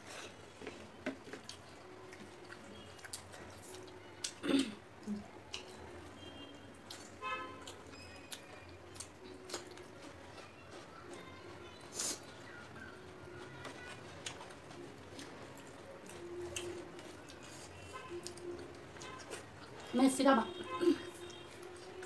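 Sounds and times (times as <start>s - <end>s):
wet chewing and lip smacks: 1.2s - 4.4s, 5.0s - 10.9s, 11.8s - 19.9s.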